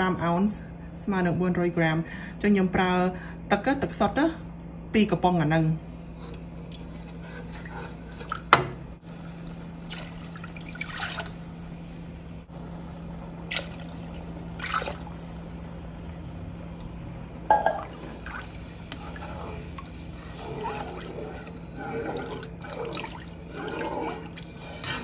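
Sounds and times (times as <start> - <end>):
spatula stirring liquid sauce: 18.0 - 25.0.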